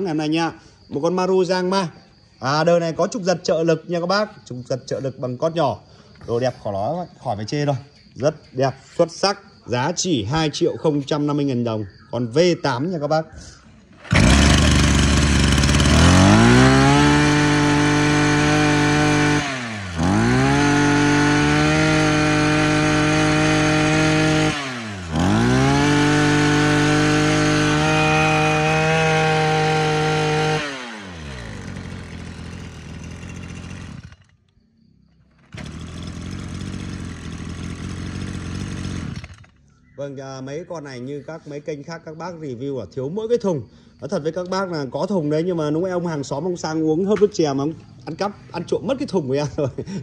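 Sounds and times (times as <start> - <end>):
brush cutter engine revving: 13.9 - 34.4, 35.3 - 39.6.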